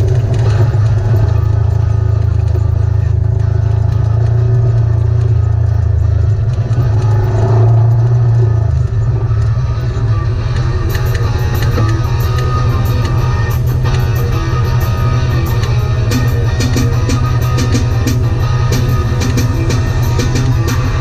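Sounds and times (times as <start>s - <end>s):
vehicle engine running on gravel: 0.0s - 21.0s.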